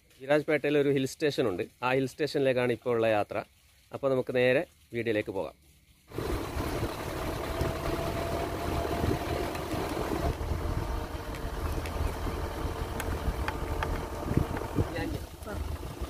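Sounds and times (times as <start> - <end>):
road and wind noise: 6.1 - 16.0
vehicle engine running: 6.1 - 16.0.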